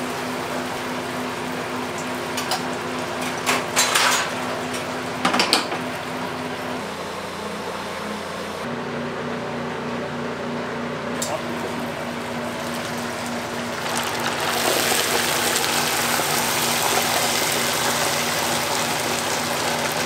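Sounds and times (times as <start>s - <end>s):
kitchen machine hum: 0.0s - 20.0s.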